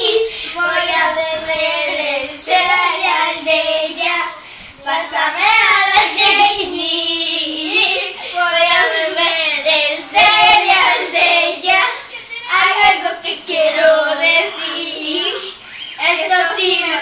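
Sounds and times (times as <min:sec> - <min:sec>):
girls singing together: 0:00.0 - 0:17.0.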